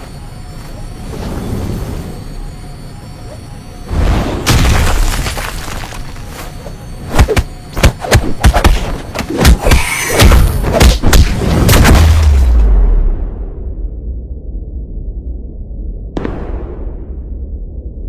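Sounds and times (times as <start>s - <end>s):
punch and kick impacts: 7.1s - 12.6s.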